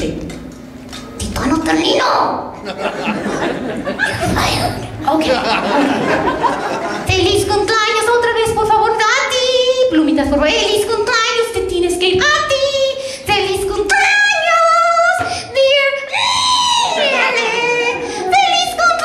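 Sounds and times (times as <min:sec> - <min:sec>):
high-pitched puppet voice singing: 0:07.2 - 0:19.0.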